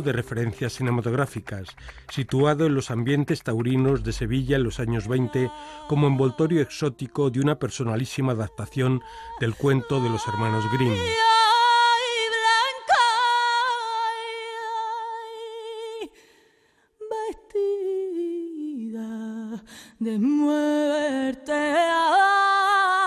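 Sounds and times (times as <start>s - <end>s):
person singing unaccompanied: 0.0s - 15.8s.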